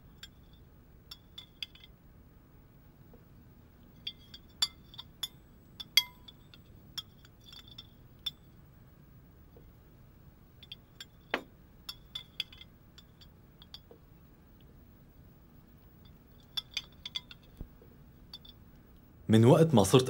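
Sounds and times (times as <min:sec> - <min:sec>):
cutlery and glassware clinking: 0:04.0 - 0:08.4, 0:10.6 - 0:13.9, 0:16.4 - 0:17.6.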